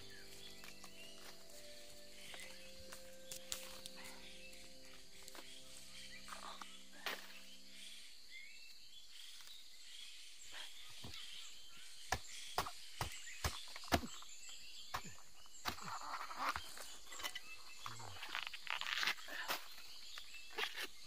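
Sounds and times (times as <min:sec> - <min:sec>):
knife chopping against log: 0:12.1 - 0:14.3, 0:14.9 - 0:16.6.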